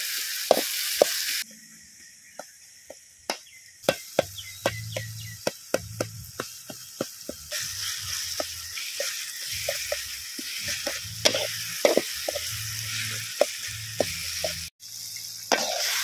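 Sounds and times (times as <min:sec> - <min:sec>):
onions and tomatoes sizzling in wok: 0:00.0 - 0:16.0
metal spoon scraping pan: 0:07.5 - 0:14.7.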